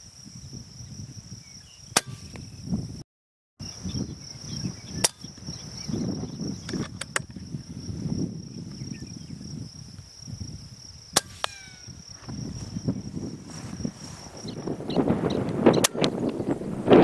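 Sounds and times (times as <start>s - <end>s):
wind rumble on microphone: 0.0s - 3.0s, 3.6s - 17.0s
high insect buzz: 3.6s - 17.0s
pellet impact smack: 11.2s - 11.9s.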